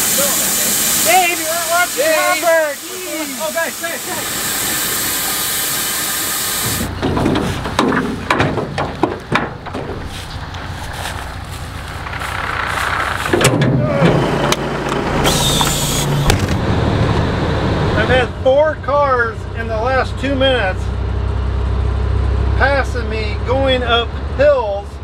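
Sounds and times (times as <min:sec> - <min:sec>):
grain pouring with a hiss: 0:00.0 - 0:07.0, 0:15.3 - 0:16.2
air brakes hissing: 0:00.0 - 0:07.8, 0:15.2 - 0:16.3
diesel truck engine running: 0:00.0 - 0:25.0
metal clanks of hopper gate: 0:06.7 - 0:15.4.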